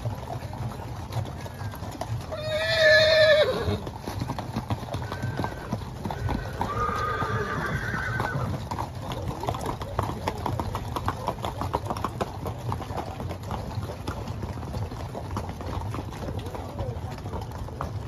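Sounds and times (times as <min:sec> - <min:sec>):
horse hooves clip-clopping on dirt: 0:00.0 - 0:18.0
horse neighing: 0:02.3 - 0:03.9, 0:04.9 - 0:08.6.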